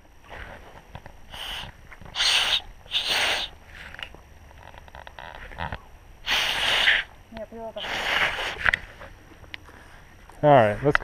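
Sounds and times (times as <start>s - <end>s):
breathy blowing into cupped hands: 0.2s - 4.1s, 6.2s - 7.2s, 7.8s - 9.1s.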